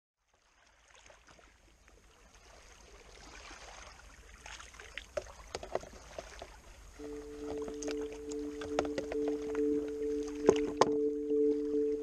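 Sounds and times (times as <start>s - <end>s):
sea waves lapping against rocks: 0.3s - 10.9s.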